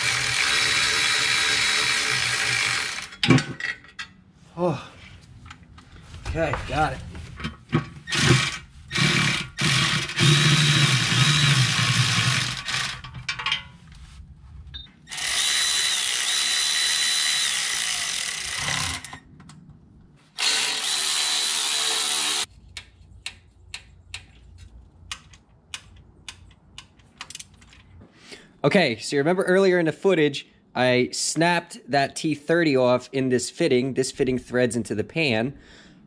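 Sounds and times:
electric ratchet motor whining: 0.0s - 3.2s, 8.1s - 13.0s, 15.1s - 19.2s, 20.4s - 22.5s.

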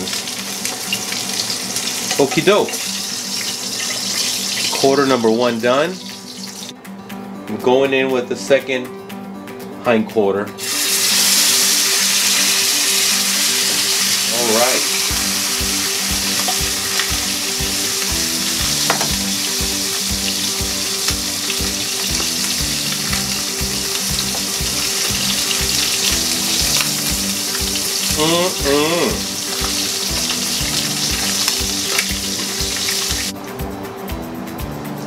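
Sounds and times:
chicken sizzling in hot oil: 0.0s - 6.7s, 10.6s - 33.3s.

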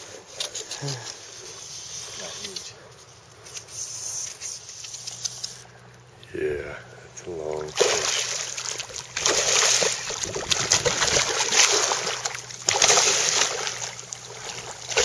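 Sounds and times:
fish thrashing and splashing: 7.4s - 15.0s.

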